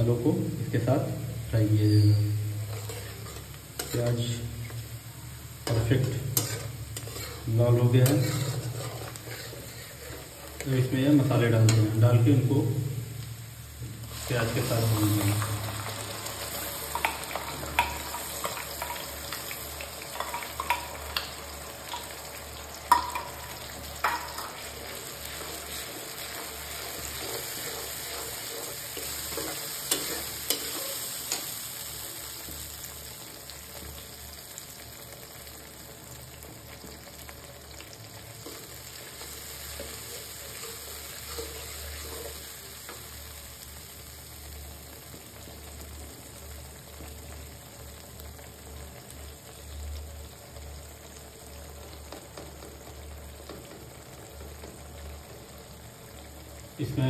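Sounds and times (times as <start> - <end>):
paste sizzling in hot oil: 0.0 - 57.0
metal utensils scraping pan: 1.9 - 4.2, 5.6 - 10.9, 24.0 - 31.5, 39.7 - 42.4.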